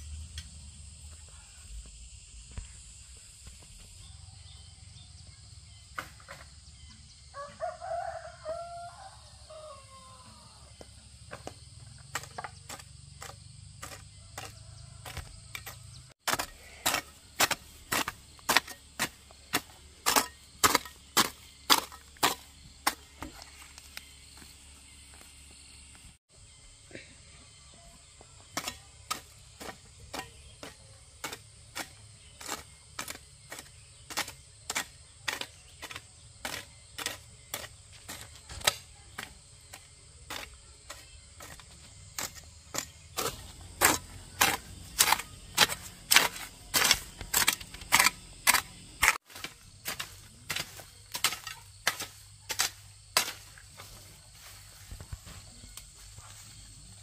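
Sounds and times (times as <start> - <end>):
hoe chopping into dry soil: 11.3 - 24.1, 28.4 - 54.0.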